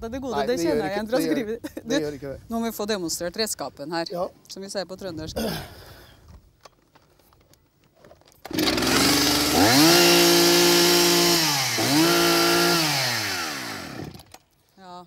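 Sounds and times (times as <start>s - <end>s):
chainsaw engine revving: 8.5s - 14.4s.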